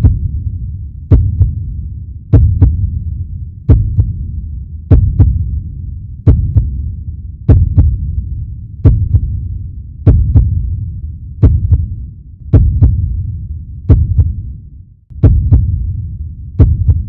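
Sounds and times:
heartbeat thumps: 0:00.0 - 0:00.4, 0:01.0 - 0:05.6, 0:06.2 - 0:06.8, 0:07.4 - 0:08.1, 0:08.8 - 0:09.4, 0:10.0 - 0:10.8, 0:11.4 - 0:13.3, 0:13.9 - 0:14.5, 0:15.1 - 0:17.0
steady low rumble: 0:00.0 - 0:17.0.

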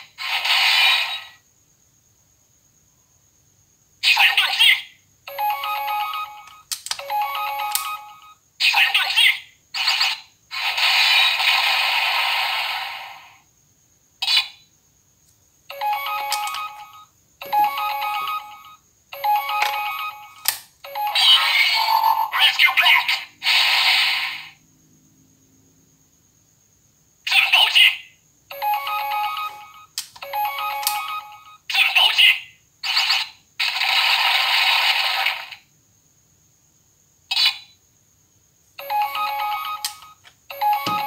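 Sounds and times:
toy hissing blast: 0:00.0 - 0:01.4, 0:09.8 - 0:13.4, 0:23.4 - 0:24.6, 0:32.9 - 0:35.6
toy electronic beeps and jingles: 0:04.3 - 0:09.3, 0:15.7 - 0:22.8, 0:28.5 - 0:32.2, 0:38.8 - 0:41.0.

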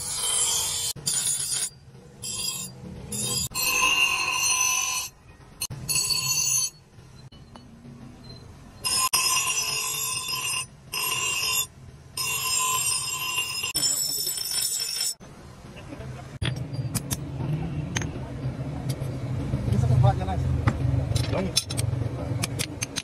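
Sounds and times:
axe grinding on abrasive wheel: 0:00.0 - 0:06.8, 0:08.8 - 0:15.2.

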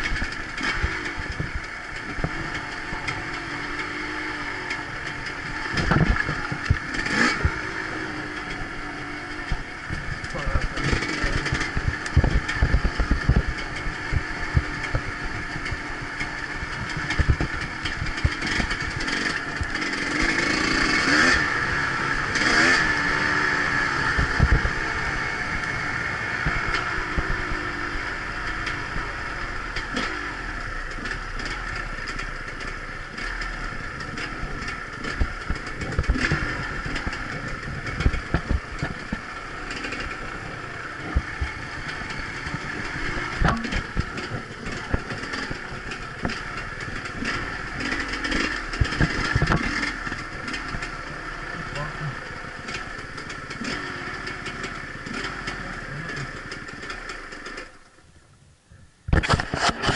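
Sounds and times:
motorcycle engine revving: 0:00.0 - 0:58.0, 0:59.1 - 0:59.9
knocks and rattles from bumps: 0:04.6 - 0:07.7, 0:09.4 - 0:20.7, 0:30.9 - 0:51.2.

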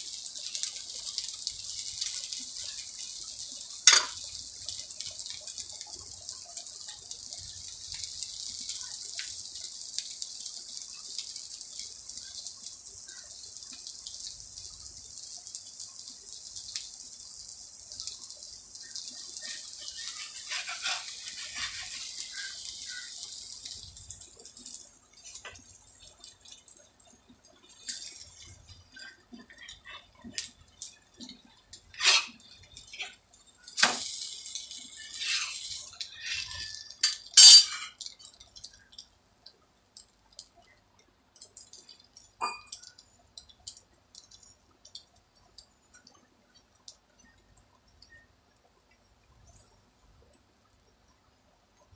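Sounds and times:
flatbread sizzling on hot griddle: 0:00.0 - 0:39.1.

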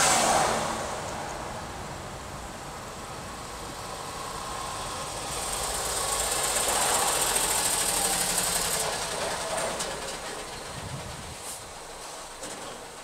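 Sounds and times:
car running in traffic: 0:00.0 - 0:13.0
hiss: 0:03.4 - 0:13.0.

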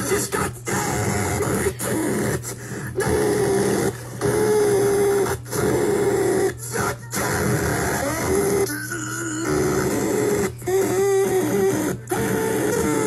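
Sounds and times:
raspy cartoon duck voice squawking: 0:00.0 - 0:08.8.

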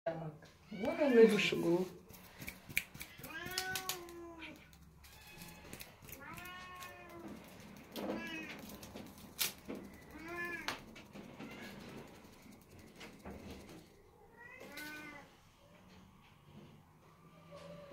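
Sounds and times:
cat meowing: 0:03.0 - 0:09.0, 0:10.0 - 0:12.1, 0:14.2 - 0:15.3.

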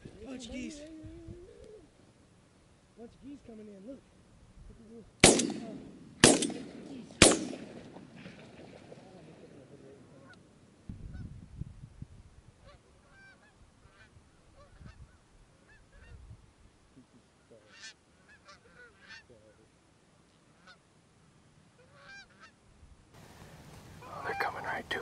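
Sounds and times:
geese honking: 0:12.6 - 0:15.0, 0:17.5 - 0:19.4, 0:20.5 - 0:20.9, 0:21.8 - 0:22.6.

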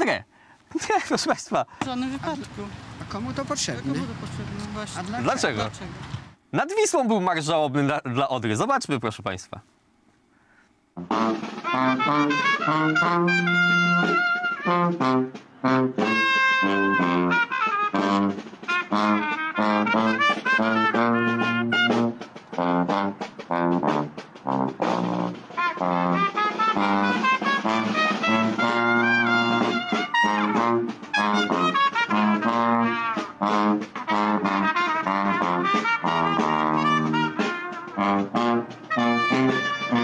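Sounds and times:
horn notes: 0:11.0 - 0:40.0.

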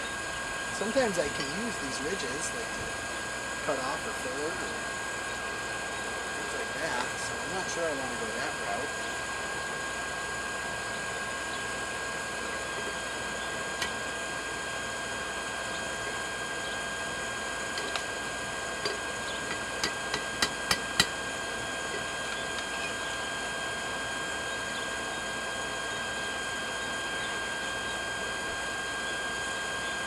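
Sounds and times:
forge air blower running: 0:00.0 - 0:30.0.

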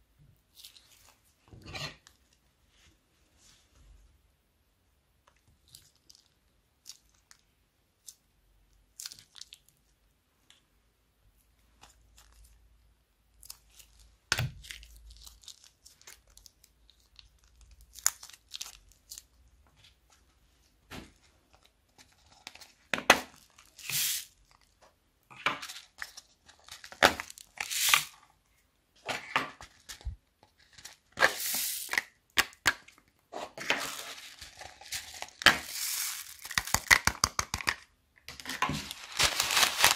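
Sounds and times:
foam beads rustling into bowl: 0:23.7 - 0:24.3, 0:27.6 - 0:28.1, 0:31.2 - 0:32.0, 0:33.7 - 0:37.0, 0:38.8 - 0:39.9
plastic bags crinkling: 0:33.6 - 0:37.7, 0:38.3 - 0:39.9.

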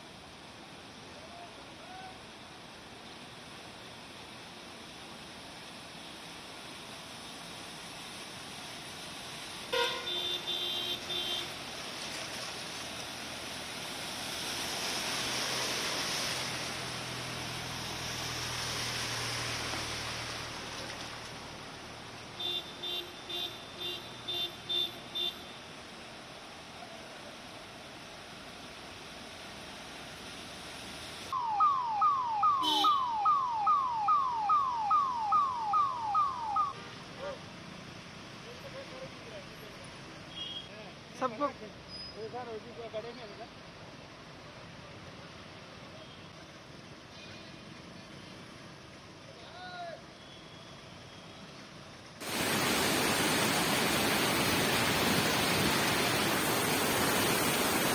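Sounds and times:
steady hiss: 0:00.0 - 0:31.4, 0:50.8 - 0:57.9
rush of floodwater: 0:00.0 - 0:57.9
vehicle horn honking: 0:09.8 - 0:11.5, 0:32.5 - 0:33.1
electronic siren sweeps: 0:31.4 - 0:36.8.

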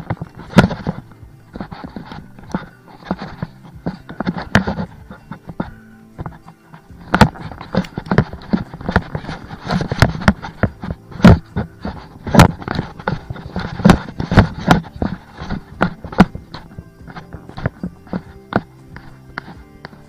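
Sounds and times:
footsteps on a trail: 0:00.0 - 0:20.0.

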